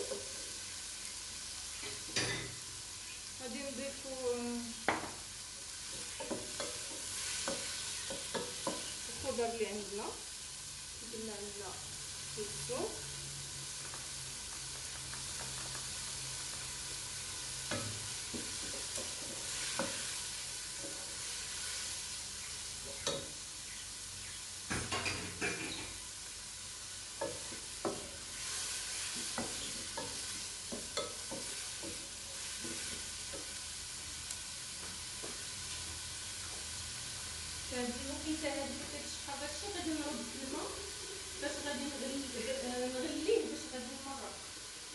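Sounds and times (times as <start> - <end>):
food sizzling in a pot: 0.0 - 44.9
wooden spoon stirring: 27.2 - 33.6.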